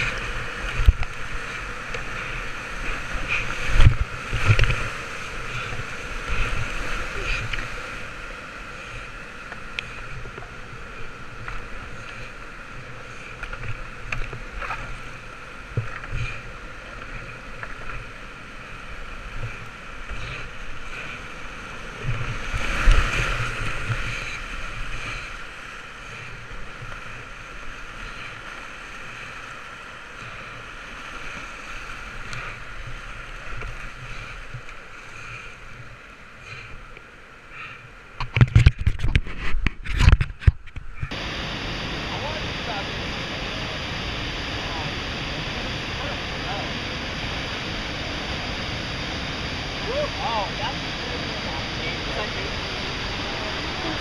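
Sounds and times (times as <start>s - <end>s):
whitewater rushing: 0.0s - 13.8s, 41.1s - 54.0s.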